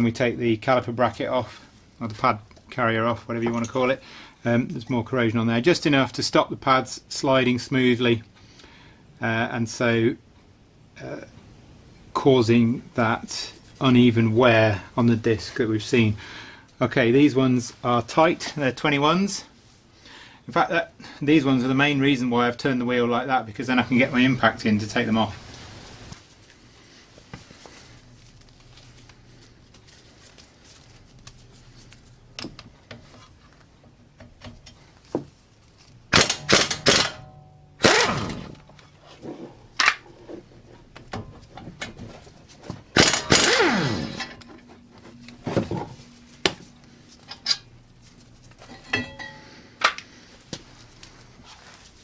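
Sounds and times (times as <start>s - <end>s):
clanks of tools and metal: 3.4s - 4.0s, 42.9s - 46.0s, 47.2s - 47.7s, 48.6s - 50.0s
impact wrench hammering: 36.2s - 38.6s, 42.9s - 44.7s.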